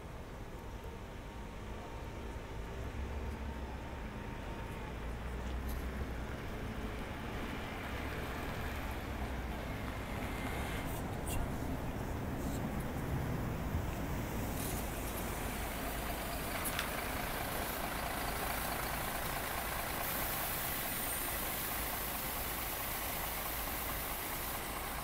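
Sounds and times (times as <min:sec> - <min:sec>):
bus driving in: 0:00.0 - 0:25.0
diesel bus pulling away: 0:00.0 - 0:25.0
road rumble: 0:00.0 - 0:25.0
high hiss: 0:14.3 - 0:25.0.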